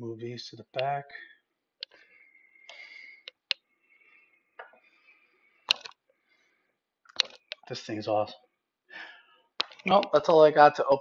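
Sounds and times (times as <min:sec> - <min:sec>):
plastic capsule clicks: 0:05.7 - 0:06.0.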